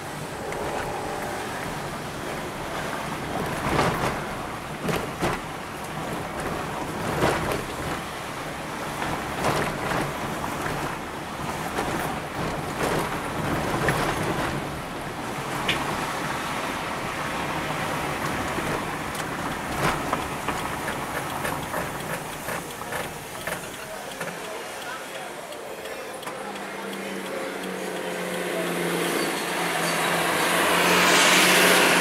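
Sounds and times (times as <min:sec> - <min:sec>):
car engine and tyres on road: 0:00.0 - 0:32.0
knocks and rattles over bumps: 0:02.4 - 0:16.2, 0:17.9 - 0:24.6.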